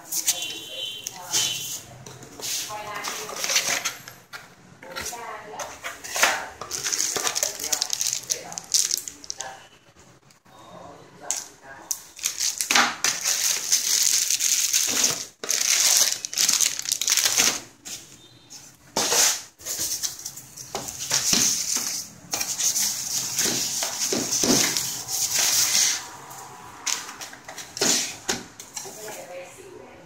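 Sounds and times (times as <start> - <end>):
plastic bags crinkling: 6.0 - 9.6, 12.0 - 17.9.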